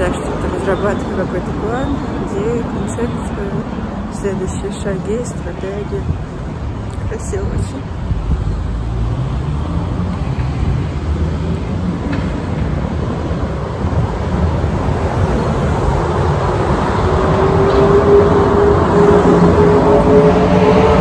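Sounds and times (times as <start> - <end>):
city traffic: 0.0 - 21.0
vehicle rising whine: 8.4 - 21.0.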